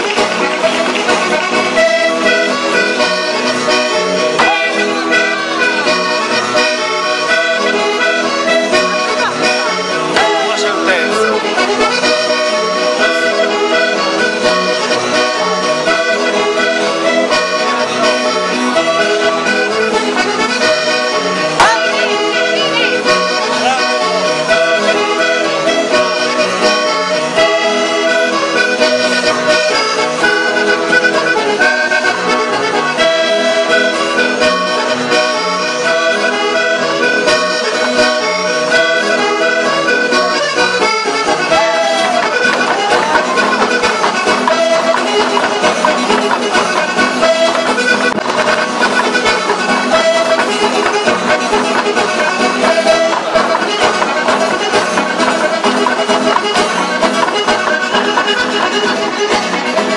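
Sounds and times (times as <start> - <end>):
accordion folk dance music: 0.0 - 59.9.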